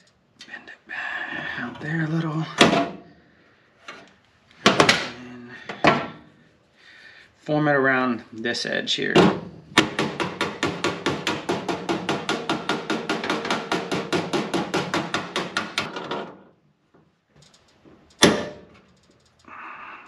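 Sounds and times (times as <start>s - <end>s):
hammer striking sheet steel: 9.8s - 16.0s, 18.2s - 18.7s
loud metal clank: 18.2s - 18.8s.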